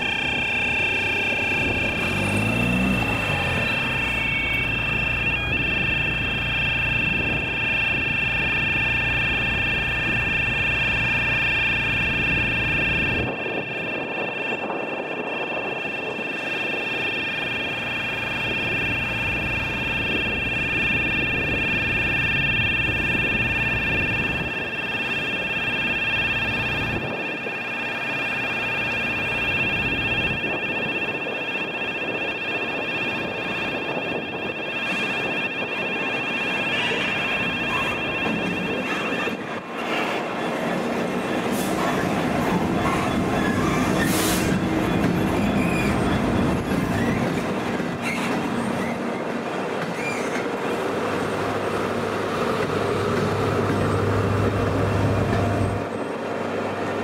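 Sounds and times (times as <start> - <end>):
level crossing alarm: 0.0 - 48.0
diesel locomotive engines: 0.0 - 57.0
train wheels on rails: 36.9 - 57.0.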